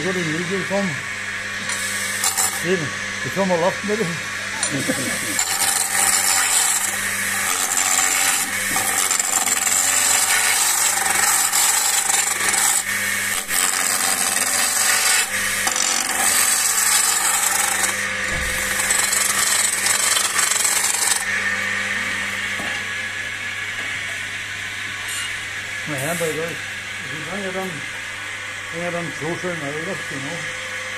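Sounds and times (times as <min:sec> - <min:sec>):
chisel cutting wood on lathe: 0:00.0 - 0:21.4
lathe motor hum: 0:00.0 - 0:30.9.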